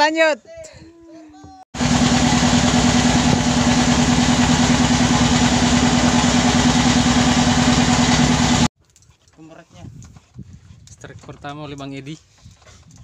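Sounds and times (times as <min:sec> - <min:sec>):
boat engine running: 0:01.8 - 0:08.7.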